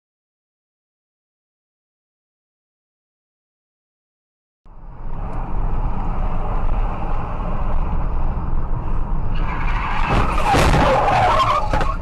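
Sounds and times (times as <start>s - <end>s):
car road and engine noise: 4.7s - 12.0s
tyres skidding: 5.0s - 12.0s.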